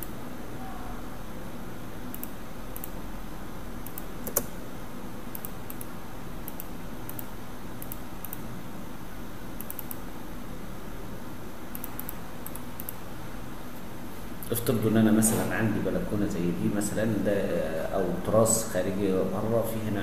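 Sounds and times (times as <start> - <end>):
low electrical hum: 0.0 - 20.0
mouse and keyboard clicks: 3.8 - 4.5.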